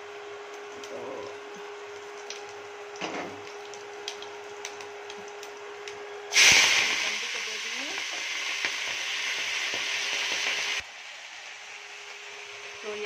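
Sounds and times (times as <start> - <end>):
spices frying quietly in oil: 0.0 - 13.0
vegetables sizzling in oil: 6.3 - 13.0.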